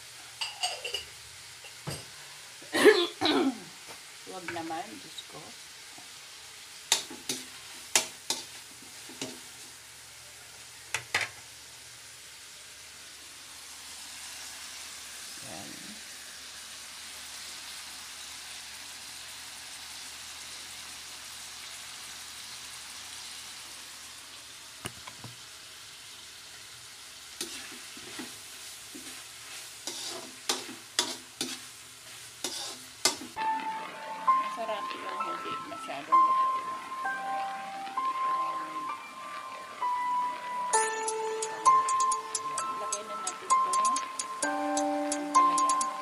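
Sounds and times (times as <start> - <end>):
food sizzling in hot oil: 0.0 - 46.0
metal spatula scraping wok: 27.4 - 33.4.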